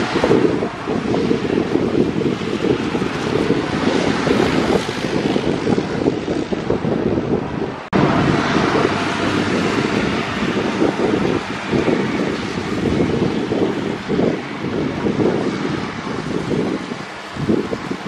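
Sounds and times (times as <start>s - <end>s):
jet engines at takeoff: 0.0s - 18.0s
wind buffeting microphone: 0.0s - 18.0s.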